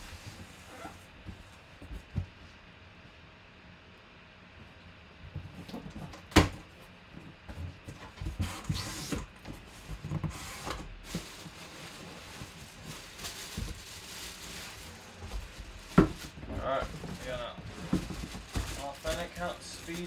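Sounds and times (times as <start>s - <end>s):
cardboard scraping and rustling: 0.0s - 2.4s, 7.5s - 20.0s
knocks on cardboard box: 15.9s - 16.3s.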